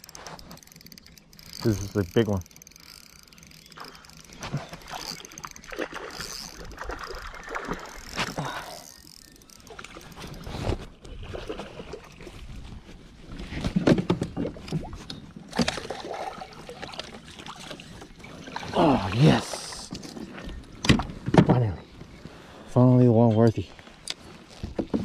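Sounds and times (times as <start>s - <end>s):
water splashing beside a kayak: 3.8s - 9.0s.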